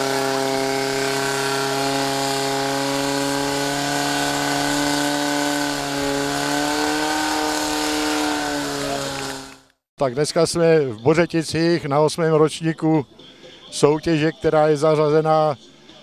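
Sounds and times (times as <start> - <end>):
fire pump engine running: 0.0 - 9.7.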